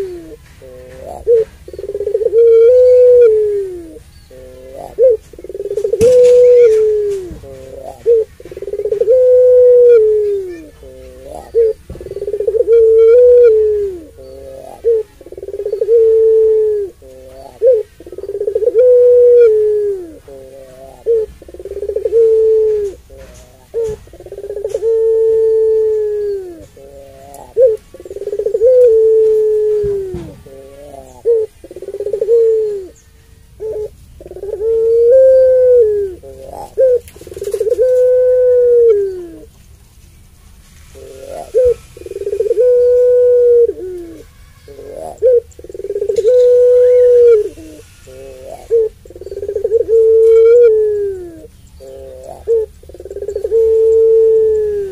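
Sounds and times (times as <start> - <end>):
dove cooing: 0.0 - 39.6, 40.7 - 54.9.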